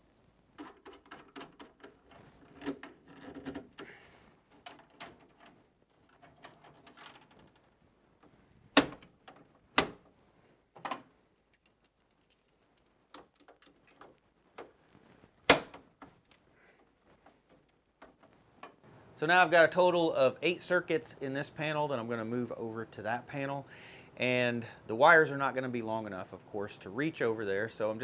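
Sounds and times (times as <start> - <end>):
plastic clicking and rattling: 0.6 - 3.9, 4.5 - 10.0, 10.8 - 14.8.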